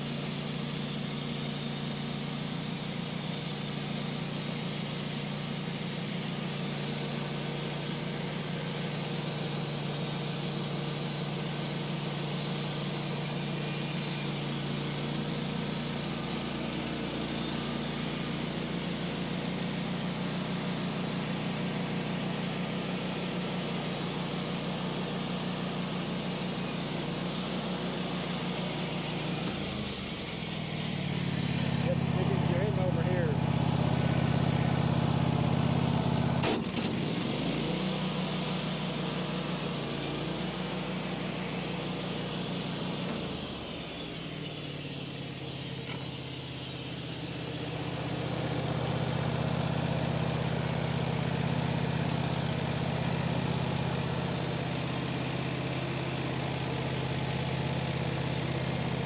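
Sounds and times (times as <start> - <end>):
sawmill engine running: 0.0 - 59.0
band blade cutting log: 25.4 - 33.2, 36.4 - 48.6.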